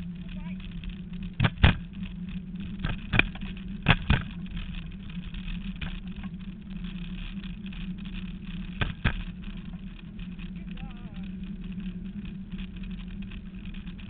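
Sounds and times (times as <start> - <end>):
scooter rumbling over grass: 0.0 - 14.0
scooter knocking over bumps: 1.4 - 1.9, 8.8 - 9.3.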